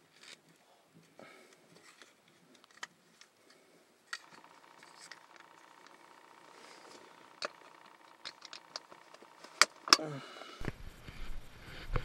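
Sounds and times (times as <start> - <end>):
faint steady high tone: 4.2 - 10.6.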